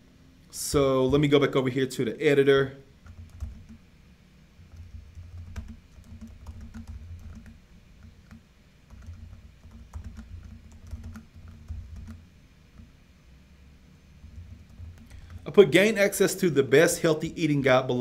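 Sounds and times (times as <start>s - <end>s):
typing on keyboard: 3.0s - 3.8s, 4.7s - 12.2s, 14.2s - 15.4s.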